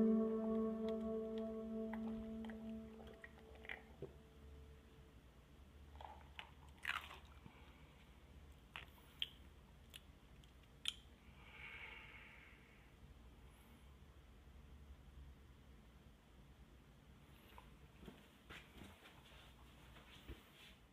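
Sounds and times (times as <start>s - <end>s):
soft hiss: 0.0s - 5.7s
lip smacks and mouth clicks: 8.7s - 11.1s.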